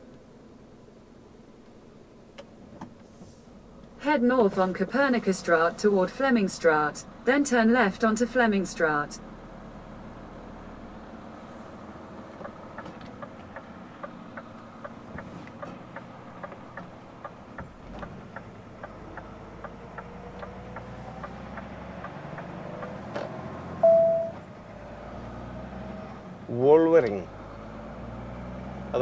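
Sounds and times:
truck engine running: 0:04.1 - 0:29.0
turn-signal indicator ticking: 0:12.4 - 0:15.3, 0:15.9 - 0:23.0
short loud beep: 0:23.8 - 0:24.4.

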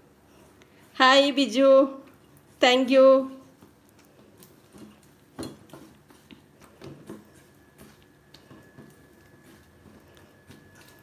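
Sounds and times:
hand squishing soft batter: 0:03.4 - 0:11.0.

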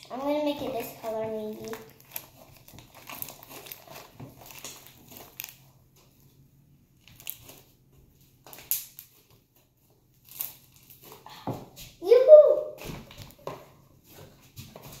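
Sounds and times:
slime crackling and squelching: 0:00.0 - 0:11.4.

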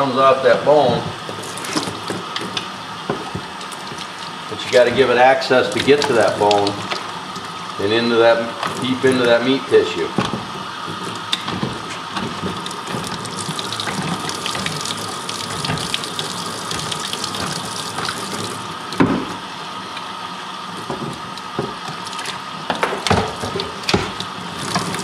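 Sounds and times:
water running from faucet: 0:03.6 - 0:08.0, 0:12.2 - 0:19.0, 0:24.3 - 0:25.0.

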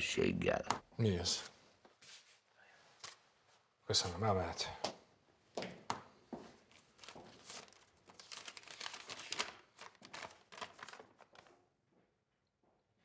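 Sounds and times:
paper rustling and crinkling: 0:06.6 - 0:11.7.

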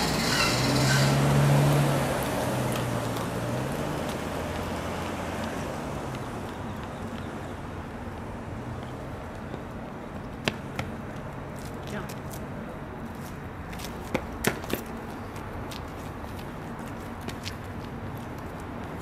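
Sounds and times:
car driving past: 0:00.0 - 0:06.5.

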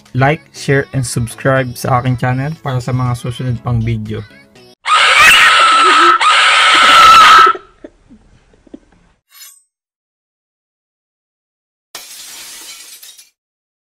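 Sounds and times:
sustained scream: 0:04.8 - 0:07.7.

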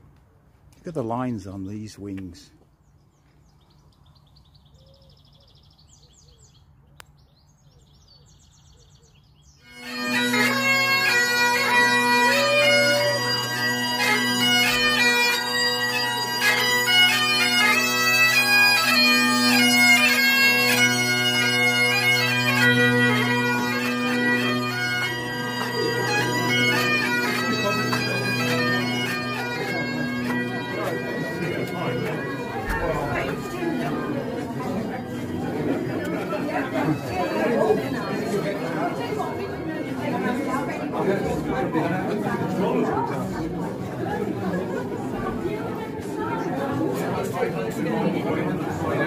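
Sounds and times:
faint birdsong: 0:01.2 - 0:09.8
bagpipe playing: 0:09.6 - 0:44.0.

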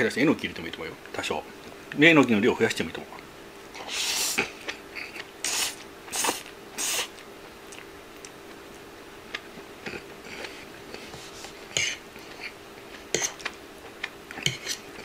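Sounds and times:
chewing with faint clicks: 0:04.5 - 0:05.4, 0:06.4 - 0:11.0, 0:11.8 - 0:15.0.

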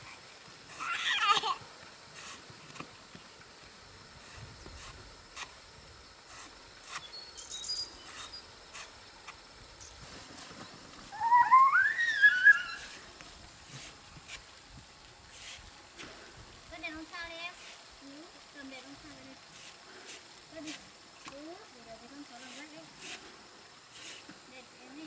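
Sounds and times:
faint high chirps: 0:11.1 - 0:13.0
animal call rising and wavering: 0:11.1 - 0:13.1.

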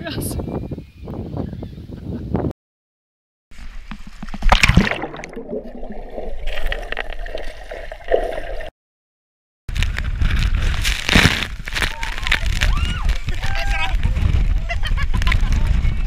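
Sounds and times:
gurgling rush of bubbles: 0:03.6 - 0:08.7
muffled underwater bubbling: 0:04.4 - 0:08.7.

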